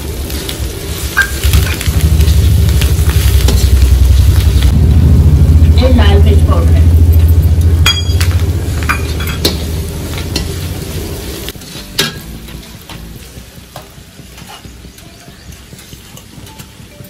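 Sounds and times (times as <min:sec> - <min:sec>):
frying sizzle: 0:00.0 - 0:17.0
low rumble: 0:00.8 - 0:13.3.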